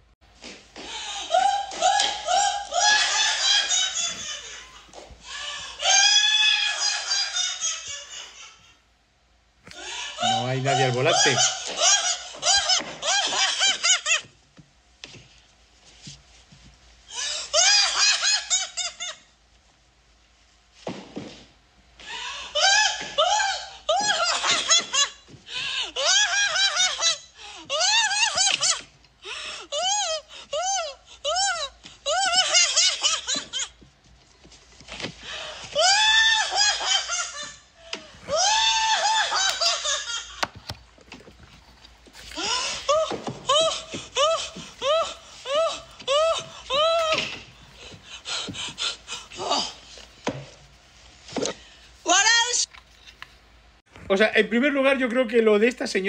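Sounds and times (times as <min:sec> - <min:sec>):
man giggling: 0:10.2 - 0:11.6
man cackling maniacally: 0:42.3 - 0:50.0.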